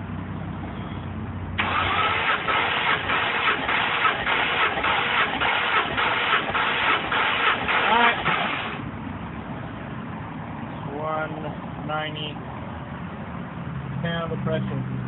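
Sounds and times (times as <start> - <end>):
engine cranking on starter: 1.6 - 8.8.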